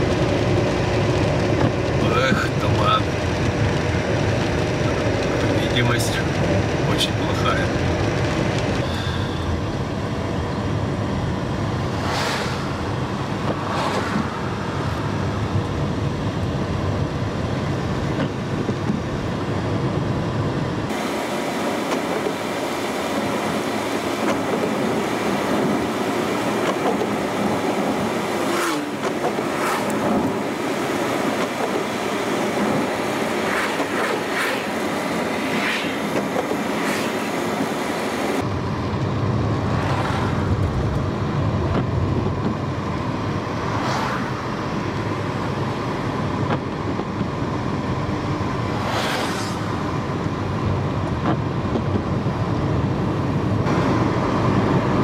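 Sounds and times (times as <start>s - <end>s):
car road noise on wet road: 0.0s - 55.0s
brief whooshes: 12.0s - 12.8s, 13.4s - 14.6s, 35.4s - 37.3s, 48.8s - 49.8s.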